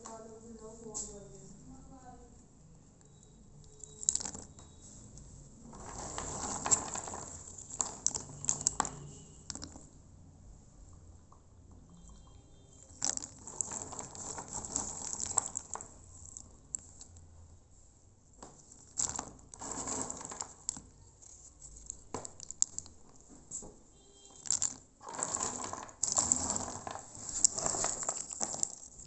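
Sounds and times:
dried nuts clattering: 3.6s - 4.8s, 5.6s - 9.9s, 12.7s - 17.2s, 18.4s - 29.0s.

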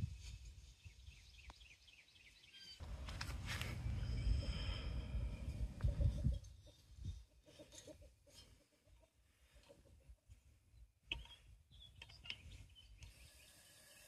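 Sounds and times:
wind rumble on microphone: 0.0s - 1.3s, 3.2s - 7.2s
faint bird chirps: 0.1s - 2.8s, 3.9s - 7.2s, 10.7s - 14.0s.

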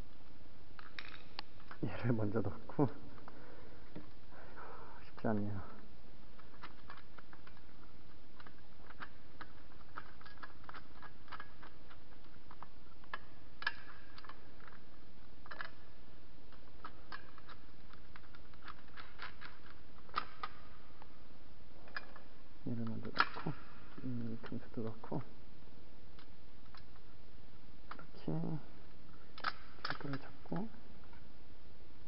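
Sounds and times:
steady background hiss: 0.0s - 32.0s
small metal hardware clicking: 0.8s - 1.8s, 6.4s - 15.8s, 16.5s - 20.7s, 21.8s - 25.0s, 29.3s - 30.7s.

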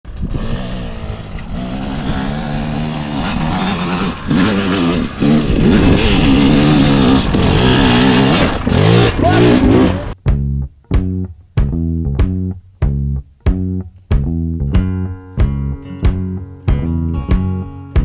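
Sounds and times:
dirt bike engine revving: 0.1s - 10.2s.

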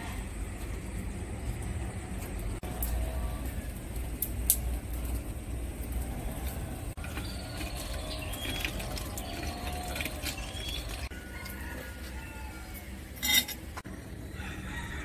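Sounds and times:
wood fire crackling: 0.1s - 11.1s
sharp snaps of fire: 4.0s - 6.6s.

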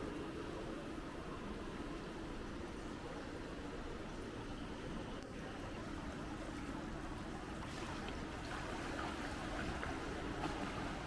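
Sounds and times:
indoor pool hall hum: 0.0s - 11.0s
water splashing from swim strokes: 6.3s - 11.0s.

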